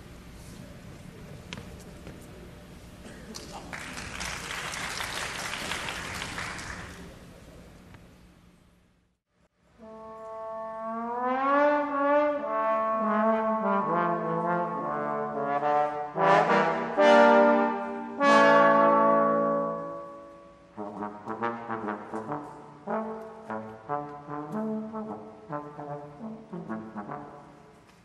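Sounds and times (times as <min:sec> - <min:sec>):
trombones playing: 0:09.8 - 0:27.8.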